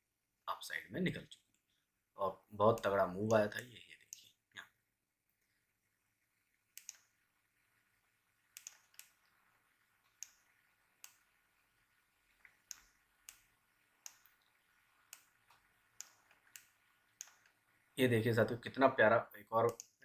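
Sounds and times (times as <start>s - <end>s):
computer mouse clicking: 6.7s - 7.1s, 8.5s - 9.3s, 10.0s - 11.4s, 12.4s - 17.6s, 19.7s - 20.0s.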